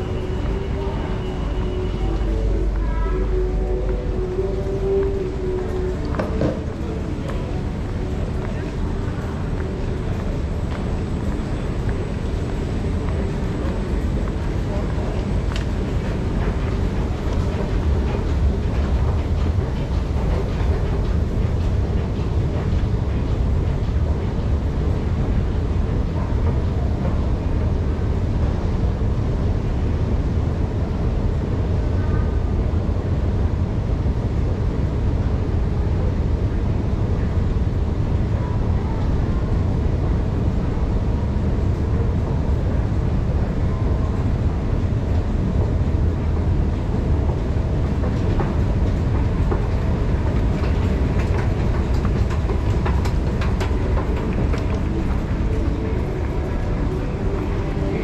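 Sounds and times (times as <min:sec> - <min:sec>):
escalator rumbling: 0:00.0 - 0:58.0.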